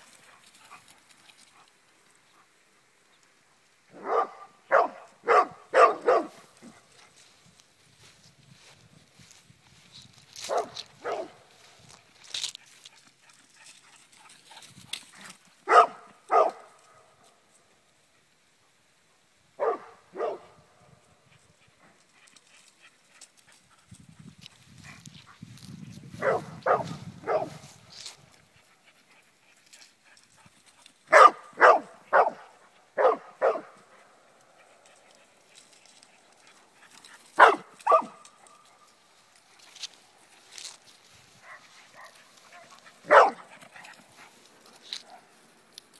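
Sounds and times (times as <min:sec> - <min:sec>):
dog barking: 0:04.0 - 0:06.4, 0:10.5 - 0:11.4, 0:15.7 - 0:16.7, 0:19.6 - 0:20.5, 0:26.2 - 0:27.6, 0:31.1 - 0:33.8, 0:37.4 - 0:38.2, 0:41.4 - 0:43.5.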